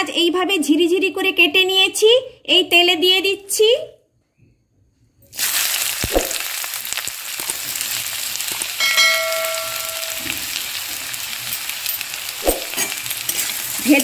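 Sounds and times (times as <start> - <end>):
onions sizzling in oil: 5.3 - 14.0
metal plate ringing against pan: 8.8 - 10.6.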